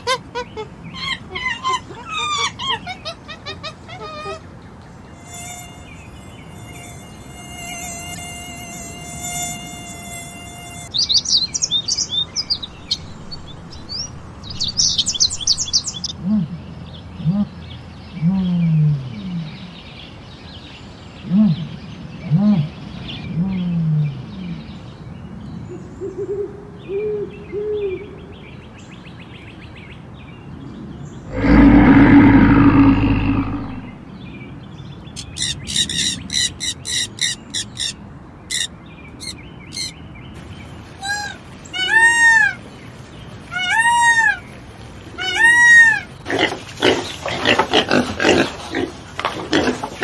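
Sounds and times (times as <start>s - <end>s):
arching animal calls: 31.3s - 34.0s
loud low rumbling roar: 31.3s - 34.0s
low animal calls: 31.3s - 34.0s
pigs grunting: 31.3s - 34.0s, 46.3s - 50.0s
high-pitched parrot calls: 35.2s - 39.9s.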